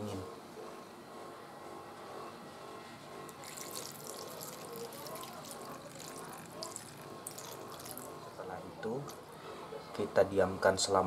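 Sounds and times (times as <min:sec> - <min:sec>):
syrup pouring and splashing: 0:03.3 - 0:08.2.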